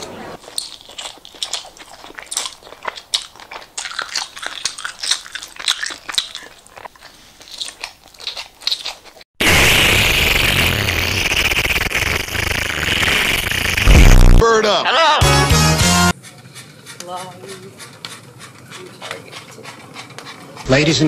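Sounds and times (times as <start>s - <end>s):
person chewing noisily: 0.4s - 9.3s, 16.1s - 20.7s.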